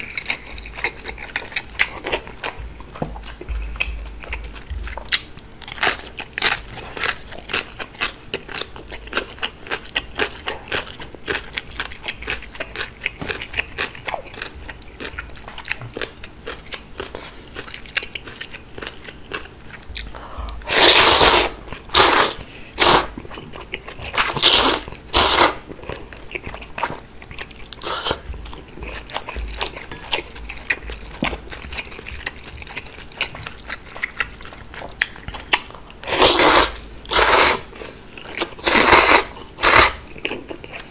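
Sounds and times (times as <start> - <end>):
crunchy chewing: 0.0 - 40.9
slurping noodles: 20.7 - 23.1, 24.2 - 25.6, 36.1 - 37.7, 38.6 - 40.0.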